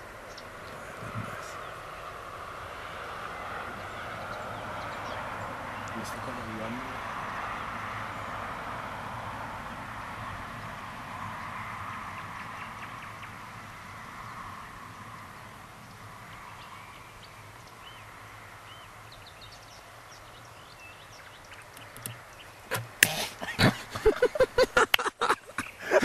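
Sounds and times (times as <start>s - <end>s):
sharp knocks and rustles: 21.8s - 23.8s.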